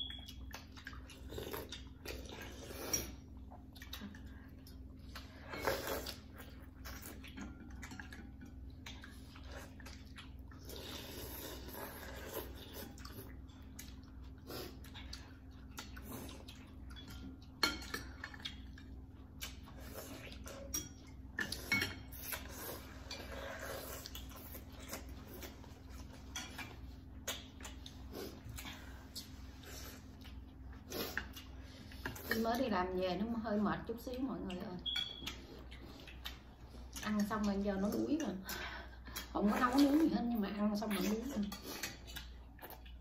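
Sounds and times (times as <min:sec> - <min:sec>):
utensils clinking on ceramic bowls: 0:20.7 - 0:22.2.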